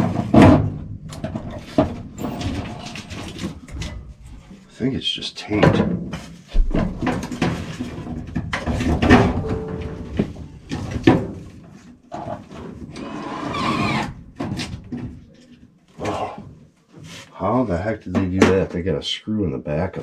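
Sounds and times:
thin metal knocks and clanks: 6.6 - 11.4.

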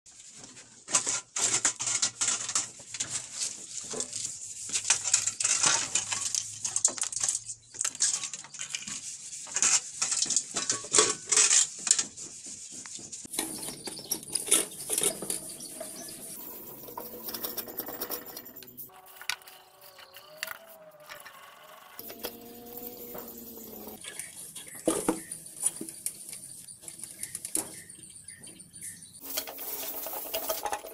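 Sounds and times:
metal and plastic knocks and scrapes: 0.4 - 18.9.

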